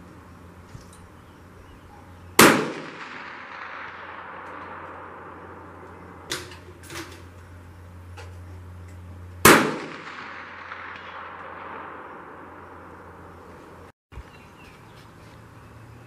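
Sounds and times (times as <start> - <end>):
loud rifle shot: 2.4 - 6.5, 9.4 - 13.5.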